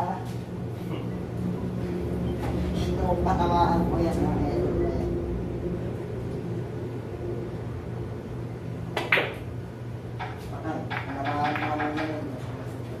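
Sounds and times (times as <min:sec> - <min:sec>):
steady low hum: 0:00.0 - 0:13.0
cue striking pool balls: 0:09.0 - 0:09.5, 0:10.2 - 0:12.2.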